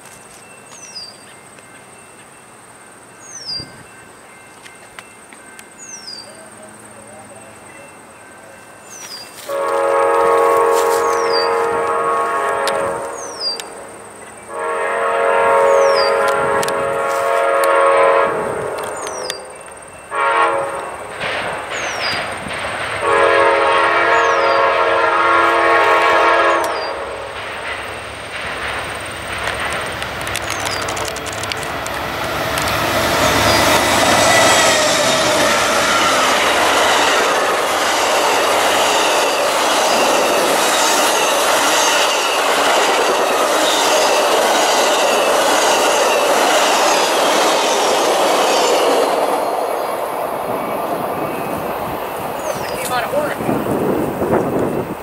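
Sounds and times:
diesel locomotive passing: 0.0s - 55.0s
locomotive horn blasts: 9.4s - 13.3s, 14.5s - 19.2s, 20.1s - 21.0s, 23.0s - 27.3s
wheels clicking over rail joints: 20.7s - 23.1s, 26.6s - 55.0s.

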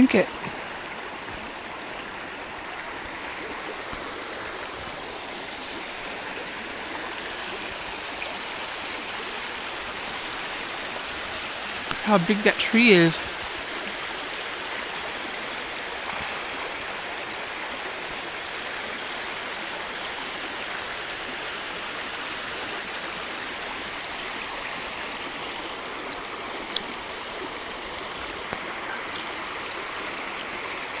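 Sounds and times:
creek running over rocks: 0.0s - 31.0s.

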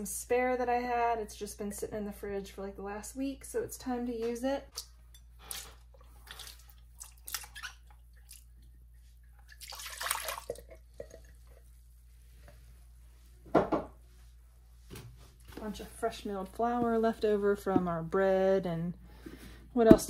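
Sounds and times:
wet plops and drips: 4.8s - 11.6s
splashy pour: 5.5s - 8.4s, 9.4s - 11.2s.

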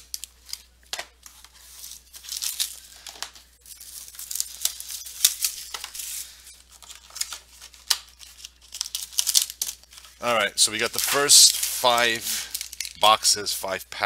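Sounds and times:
foil packs crinkling: 0.0s - 13.5s
wrapper ripping: 1.2s - 13.1s.

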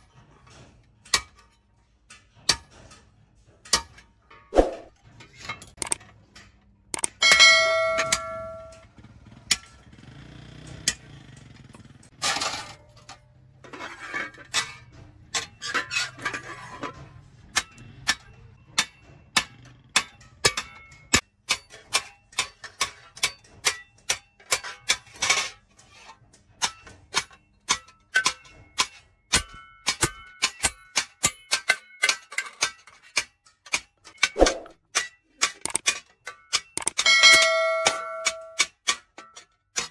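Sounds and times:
hammer tapping on metal: 7.0s - 8.8s, 36.5s - 39.1s
hammer clanging on anvil: 7.1s - 8.9s, 26.6s - 39.9s.

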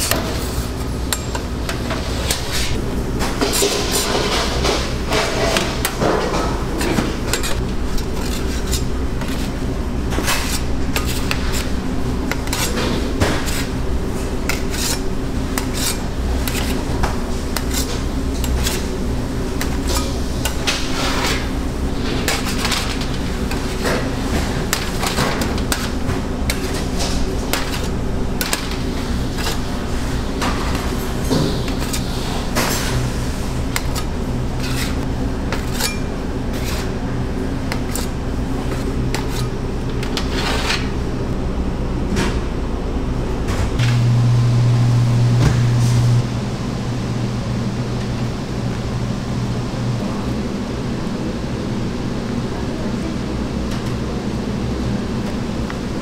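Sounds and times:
metal baking trays clattering: 0.0s - 41.0s
low hum of kitchen equipment: 0.0s - 56.0s.

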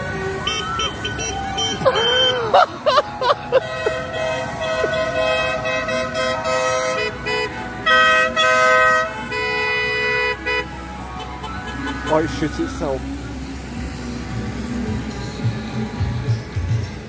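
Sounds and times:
vehicle horns sounding: 0.1s - 13.2s.

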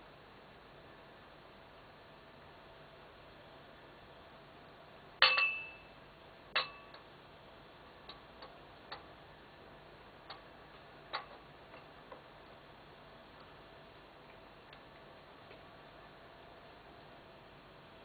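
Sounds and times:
crockery clinking and tapping: 5.2s - 5.9s.

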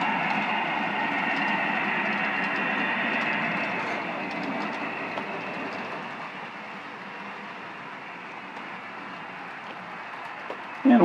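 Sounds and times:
wheels clicking over rail joints: 0.0s - 6.2s.

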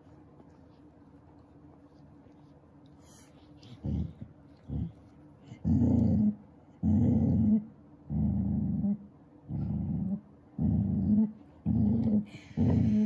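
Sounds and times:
puppy growling: 3.6s - 13.0s.

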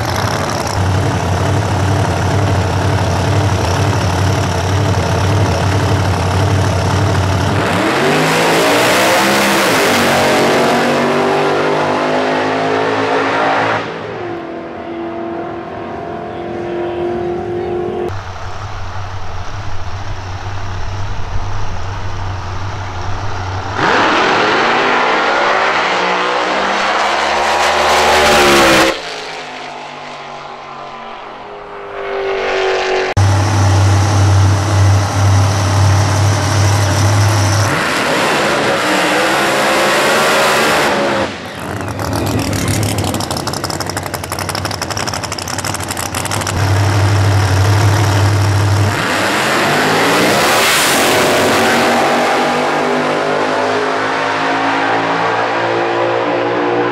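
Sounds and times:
steady low engine note: 0.0s - 7.8s, 16.2s - 23.8s, 33.0s - 37.8s, 41.6s - 49.0s
drag racing engines revving: 0.0s - 56.9s
car launching with rising pitch: 18.2s - 56.9s.

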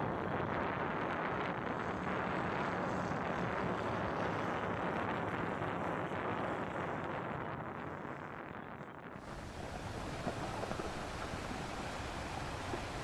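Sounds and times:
jet ski engines droning: 9.2s - 13.0s
wind on microphone: 9.2s - 13.0s.

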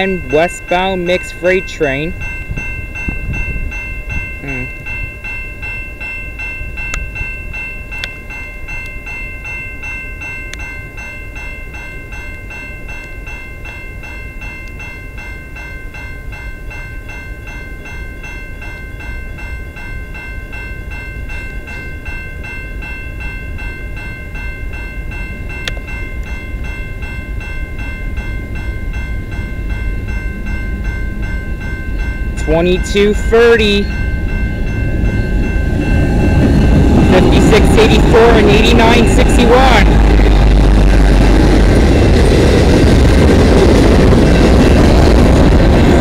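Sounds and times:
level-crossing warning bell ringing: 0.0s - 46.0s
low rumble: 33.9s - 46.0s.

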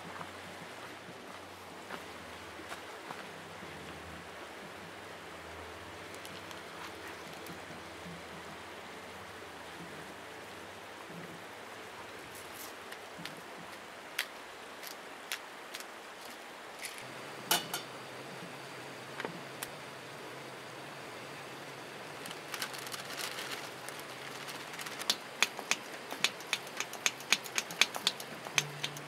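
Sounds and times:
steady outdoor hiss: 0.0s - 29.0s
cooking gear clicking and knocking: 24.4s - 29.0s.

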